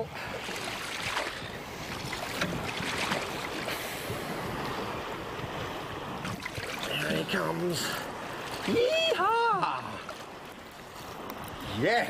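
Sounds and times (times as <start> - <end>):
wind buffeting microphone: 0.0 - 9.5
water splashing beside boat: 0.0 - 12.0.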